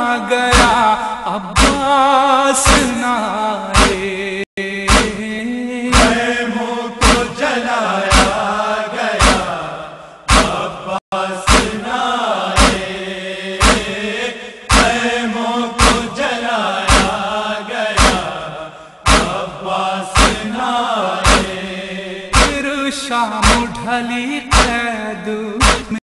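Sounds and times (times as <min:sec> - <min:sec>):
sharp steady beat: 0:00.6 - 0:00.8, 0:01.6 - 0:01.9, 0:02.7 - 0:02.9, 0:03.8 - 0:04.0, 0:04.9 - 0:05.2, 0:06.0 - 0:06.3, 0:07.0 - 0:07.4, 0:08.1 - 0:08.6, 0:09.2 - 0:09.7, 0:10.3 - 0:10.8, 0:11.5 - 0:11.9, 0:12.6 - 0:13.0, 0:13.6 - 0:14.1, 0:14.7 - 0:15.2, 0:15.8 - 0:16.2, 0:16.9 - 0:17.3, 0:18.0 - 0:20.6, 0:21.2 - 0:21.6, 0:22.3 - 0:22.6, 0:23.4 - 0:23.8, 0:24.5 - 0:24.8, 0:25.6 - 0:26.0.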